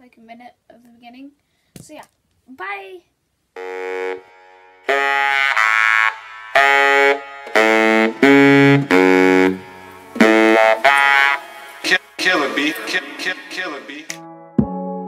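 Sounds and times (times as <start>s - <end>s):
held chords: 3.6s - 15.0s.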